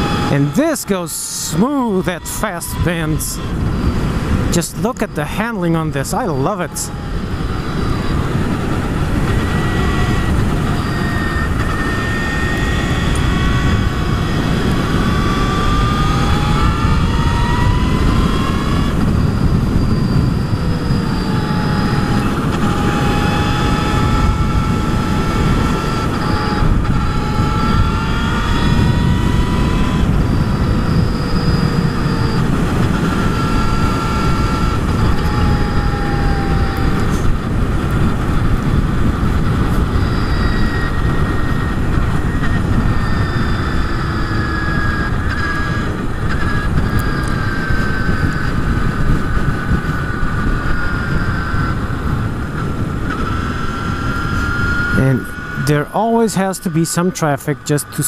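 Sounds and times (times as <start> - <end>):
electric motorcycle motor whine: 0.0 - 58.0
wind noise on microphone: 0.0 - 58.0.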